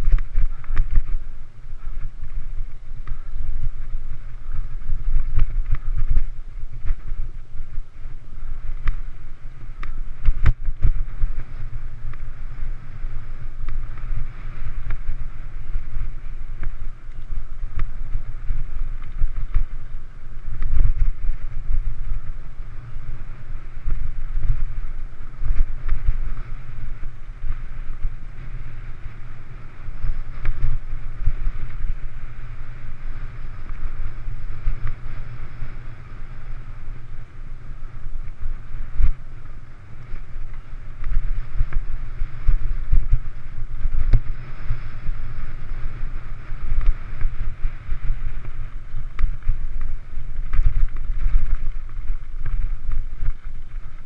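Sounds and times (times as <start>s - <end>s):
bike rattling over bumps: 0.0s - 54.0s
wind buffeting microphone: 0.0s - 54.0s.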